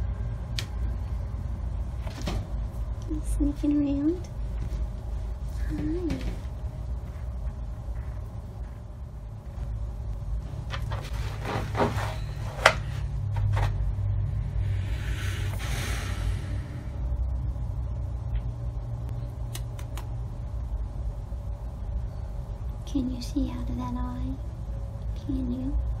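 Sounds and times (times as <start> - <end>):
steady low rumble: 0.0 - 26.0
rustle of bedding: 10.5 - 13.8.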